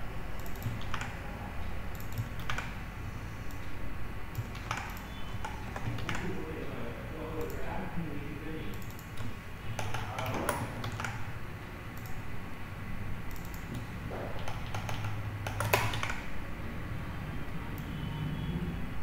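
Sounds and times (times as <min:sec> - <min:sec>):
computer keyboard typing: 0:00.3 - 0:02.8, 0:03.4 - 0:07.9, 0:08.7 - 0:11.3, 0:11.9 - 0:12.3, 0:13.3 - 0:16.4.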